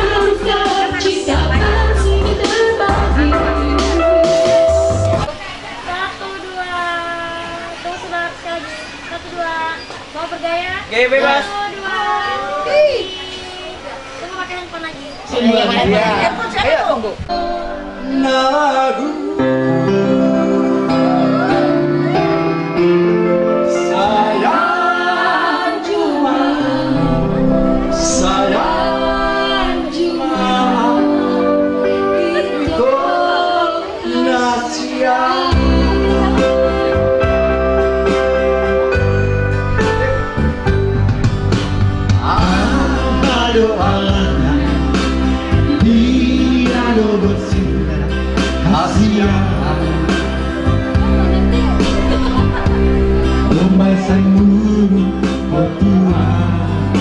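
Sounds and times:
woman singing: 0.0 - 5.2, 23.8 - 37.2
person singing: 0.0 - 5.3, 17.3 - 37.4, 42.1 - 57.0
steady bass line: 0.0 - 5.3, 26.2 - 32.2, 35.5 - 57.0
sustained instrumental chords: 0.0 - 5.3, 17.2 - 57.0
guitar: 0.0 - 5.7, 15.6 - 57.0.

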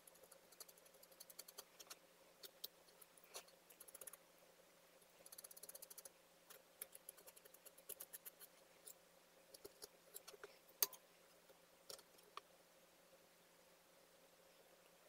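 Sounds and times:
palette knife scraping and clicking: 5.3 - 11.0.

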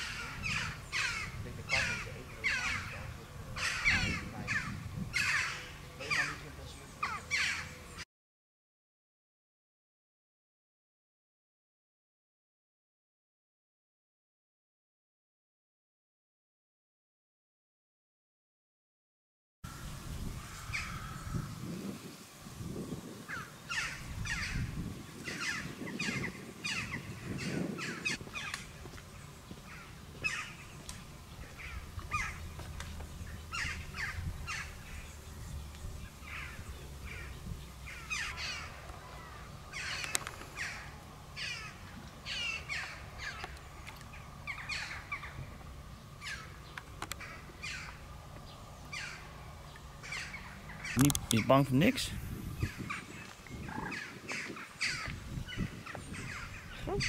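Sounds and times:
birds calling: 0.0 - 8.0, 19.7 - 57.0.

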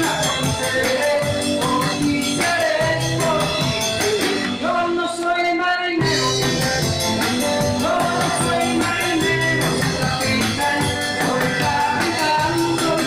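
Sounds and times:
person singing: 0.0 - 13.0
rock and roll band playing: 0.0 - 13.0.

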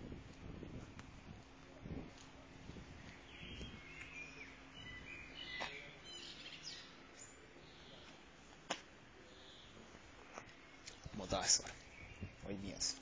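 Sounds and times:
bird chirps: 3.0 - 8.2, 9.2 - 13.0.

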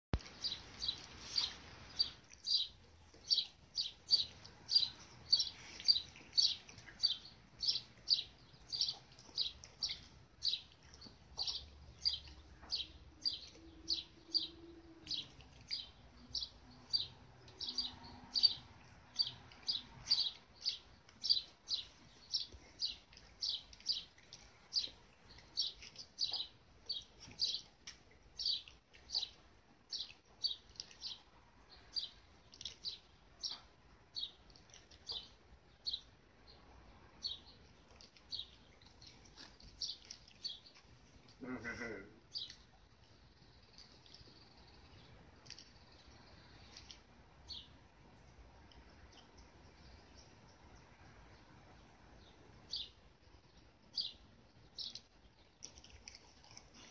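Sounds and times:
small bird chirping: 0.2 - 36.1, 37.2 - 40.8, 52.2 - 56.9.

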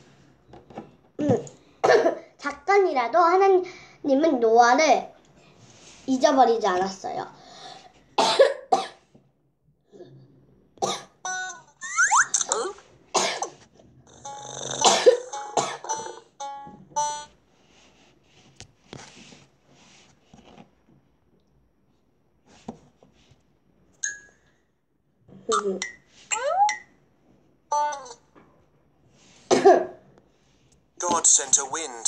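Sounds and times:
child coughing: 1.2 - 2.4, 8.2 - 9.0, 10.8 - 11.2, 12.4 - 13.6, 14.5 - 16.2, 29.5 - 30.0.

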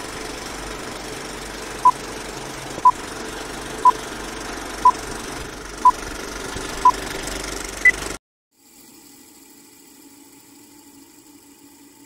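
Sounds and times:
film projector whirring rattle: 0.0 - 8.2.

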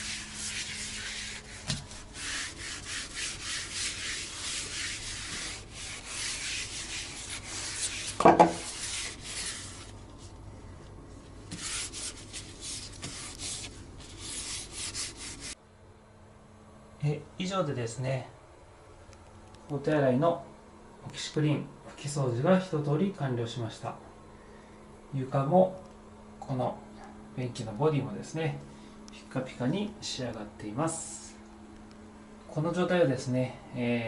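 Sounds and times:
cloth wiping a floor: 0.0 - 10.4, 11.2 - 15.6.

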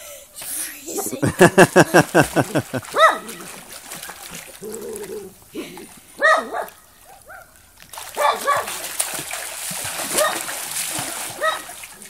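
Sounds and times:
swimmer splashing: 0.4 - 12.0
dog barking: 2.9 - 3.4, 6.2 - 7.5, 8.2 - 8.8, 10.1 - 10.5, 11.4 - 11.8.

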